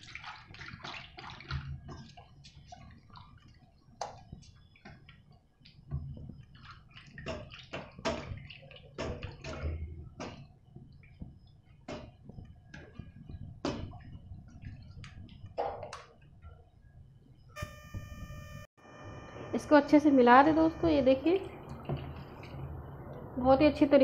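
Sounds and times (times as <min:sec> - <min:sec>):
wet squelches and sloshes: 0:00.0 - 0:16.3.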